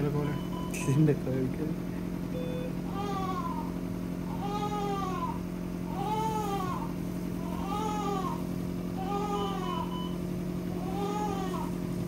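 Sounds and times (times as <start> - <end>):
steady hum: 0.0 - 12.0
newborn baby crying: 2.9 - 3.7, 4.3 - 8.4, 9.0 - 10.0, 10.7 - 11.7.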